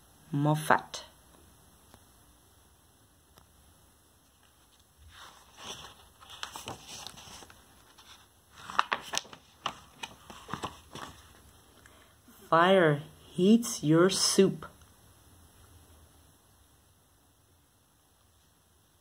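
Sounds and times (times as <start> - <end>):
book pages turning: 4.3 - 11.6.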